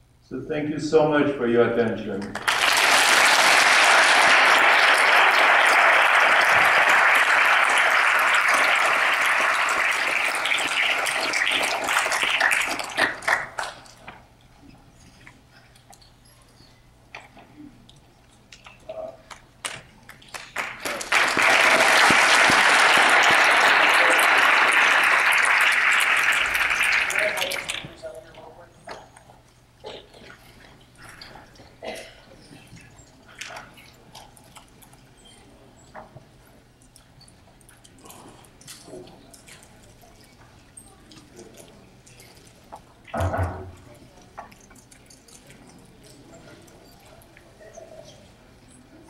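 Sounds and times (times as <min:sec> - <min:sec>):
audience applauding: 0:02.3 - 0:14.0, 0:19.6 - 0:28.0.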